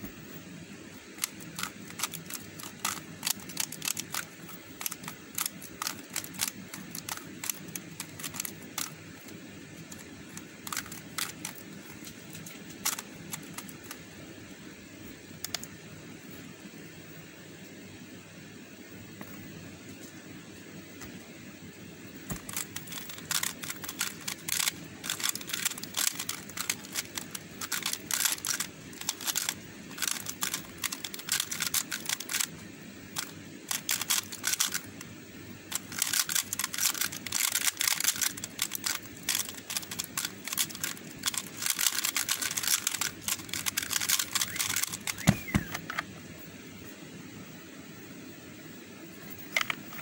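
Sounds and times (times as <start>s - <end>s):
plastic puzzle clicking: 1.2s - 14.0s, 22.3s - 32.6s, 33.2s - 34.9s, 35.7s - 46.0s.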